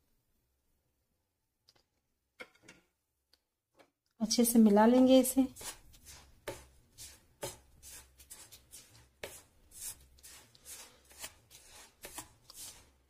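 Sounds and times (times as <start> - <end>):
wooden spatula scraping bowl: 4.3 - 13.0.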